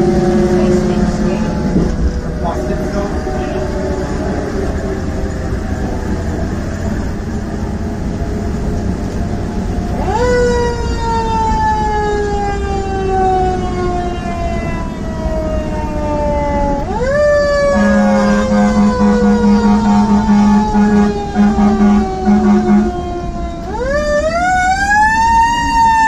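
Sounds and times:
engine and road rumble: 0.0 - 26.0
mechanical siren wailing: 0.0 - 26.0.

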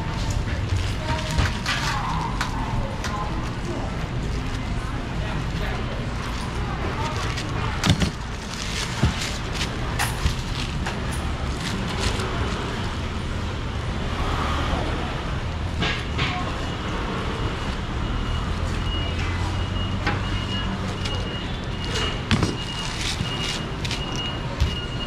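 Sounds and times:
clicks and rustles at stall: 0.0 - 13.2, 20.8 - 25.0
distant voices: 0.0 - 25.0
low rumble of motor traffic: 0.0 - 25.0.

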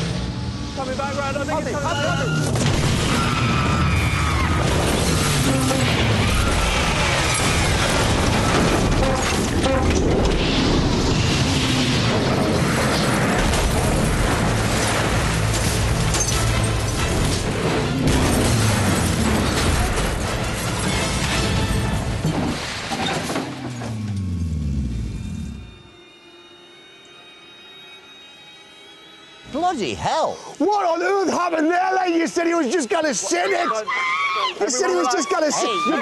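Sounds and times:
tumbling metal crunching: 2.4 - 24.5
explosion booms: 2.5 - 9.0
music: 15.5 - 22.6, 24.9 - 30.6.

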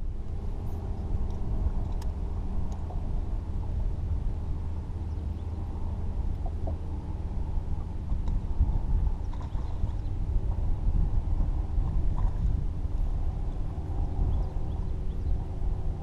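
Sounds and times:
boat motor rumbling: 0.0 - 16.0.

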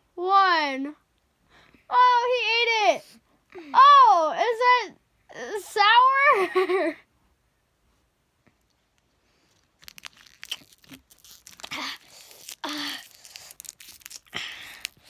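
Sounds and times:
candy wrapper crinkling: 8.7 - 15.0.

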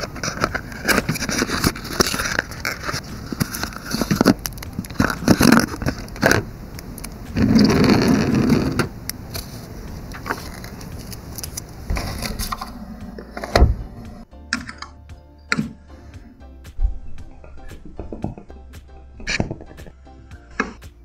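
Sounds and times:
foil and paper crinkling: 0.0 - 6.5, 9.4 - 12.6.

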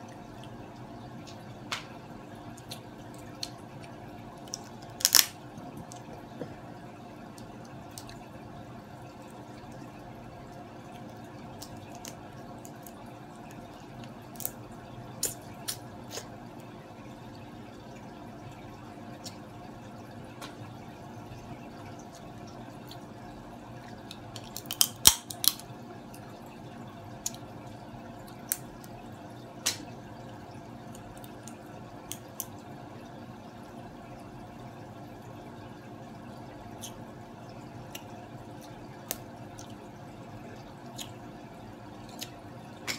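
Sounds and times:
aquarium filter hum: 0.0 - 42.9
water trickle: 0.0 - 42.9
crab shell cracking: 4.5 - 5.4, 11.6 - 13.0, 14.3 - 14.6, 24.4 - 25.7.

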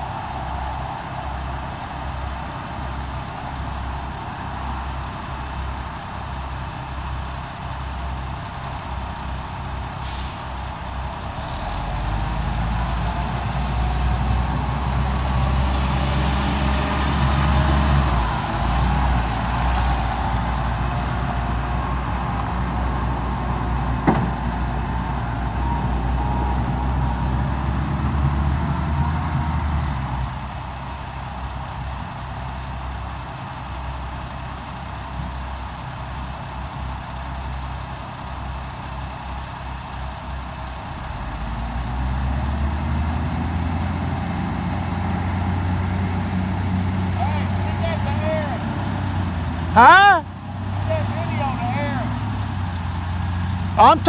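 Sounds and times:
heavy vehicle rumble: 0.0 - 54.0
rising hiss: 10.0 - 10.6.

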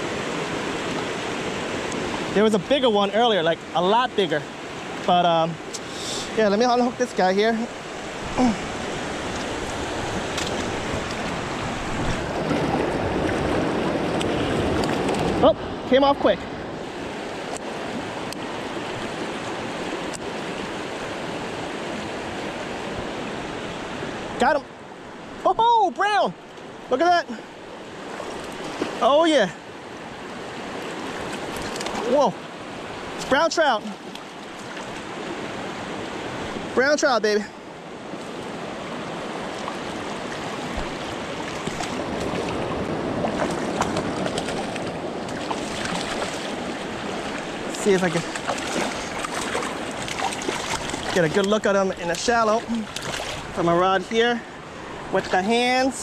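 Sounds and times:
river rushing over rocks: 6.2 - 16.0, 27.8 - 56.0
light water splashes: 7.7 - 15.5, 28.0 - 29.3, 30.6 - 36.7, 38.1 - 53.7.

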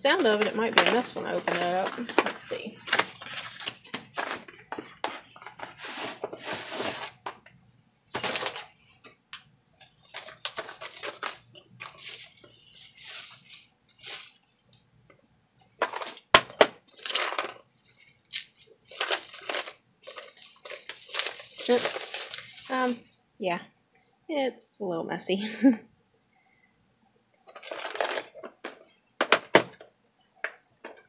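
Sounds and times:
bubble wrap crinkling: 0.0 - 9.1, 9.8 - 14.9, 15.6 - 23.2, 27.5 - 28.9
small metal parts rattling: 27.5 - 28.9.

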